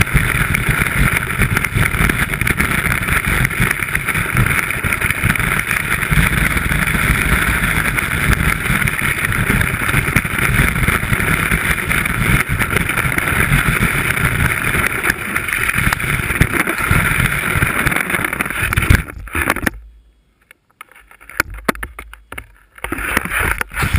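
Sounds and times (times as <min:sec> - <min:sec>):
skis scraping over snow: 0:00.0 - 0:19.6, 0:22.6 - 0:23.9
small knocks: 0:17.9 - 0:23.7.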